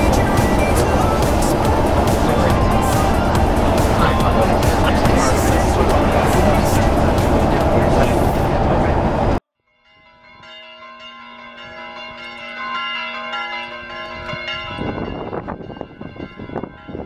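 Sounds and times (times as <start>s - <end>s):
low irregular rumble: 0.0s - 9.4s
church bells ringing: 9.7s - 17.0s.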